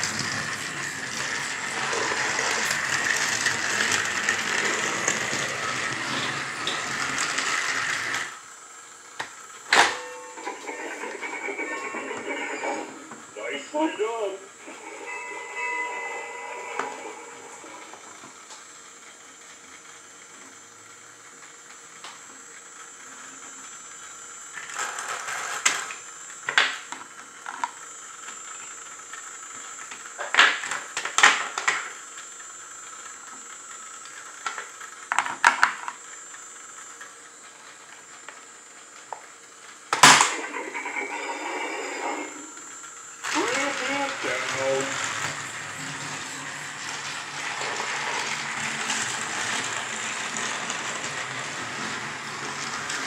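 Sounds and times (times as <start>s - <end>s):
plastic toy track clicking: 24.6s - 32.3s, 32.9s - 36.4s, 43.2s - 53.0s.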